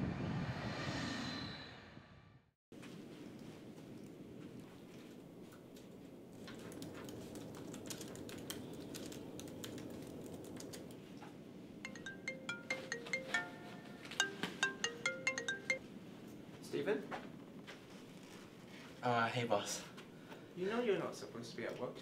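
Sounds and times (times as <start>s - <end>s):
bell-like plucked melody: 11.9s - 15.8s.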